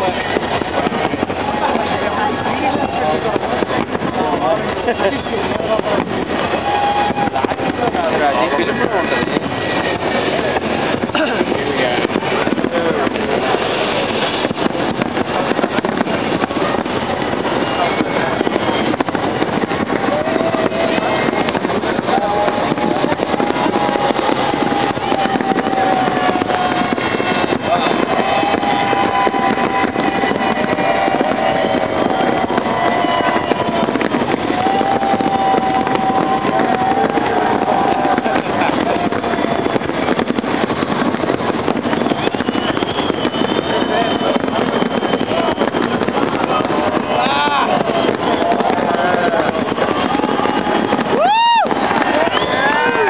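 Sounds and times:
crowd voices calling out: 0:00.0 - 0:53.0
fireworks bangs and crackles: 0:00.0 - 0:53.0.

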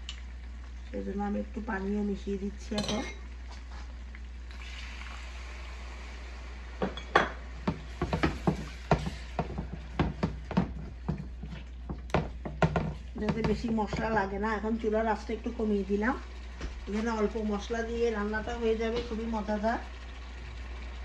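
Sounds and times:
masala sizzling in metal pan: 0:00.0 - 0:21.0
wooden spoon scraping pan: 0:07.7 - 0:14.2.

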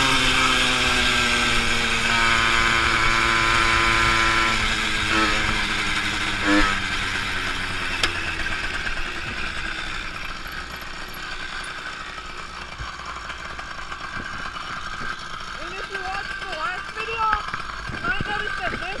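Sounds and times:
tyres rolling on asphalt: 0:00.0 - 0:19.0
bicycle freewheel ticking: 0:06.0 - 0:19.0.

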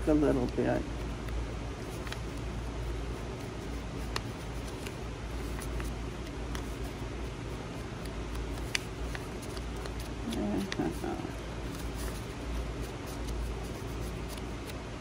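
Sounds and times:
fans humming: 0:00.0 - 0:15.0
paper rustling: 0:01.8 - 0:14.8
light taps on paper: 0:04.0 - 0:06.9, 0:08.0 - 0:10.9.

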